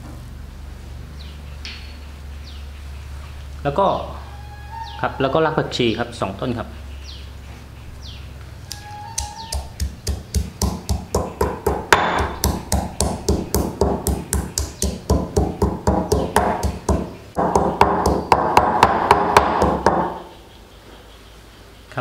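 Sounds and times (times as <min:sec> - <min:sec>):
stone pestle pounding in mortar: 0:09.2 - 0:20.2.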